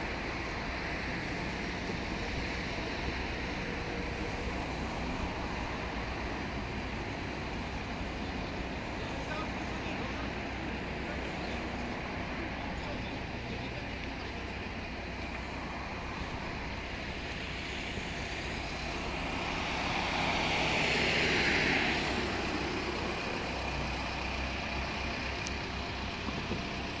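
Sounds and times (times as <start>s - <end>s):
road traffic hum: 0.0s - 27.0s
vehicle passing by: 17.5s - 23.8s.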